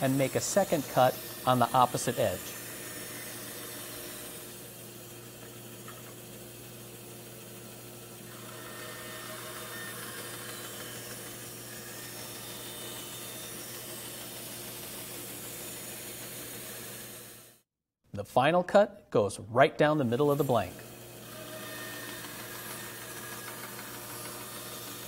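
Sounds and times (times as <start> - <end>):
band saw motor hum: 0.0 - 17.6, 20.0 - 25.0
saw blade cutting wood: 0.0 - 17.6, 20.0 - 25.0.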